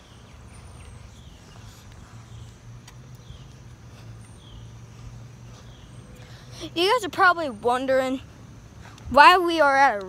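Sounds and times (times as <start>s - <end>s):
small bird chirping: 0.0s - 8.0s
low outdoor rumble: 0.0s - 10.0s.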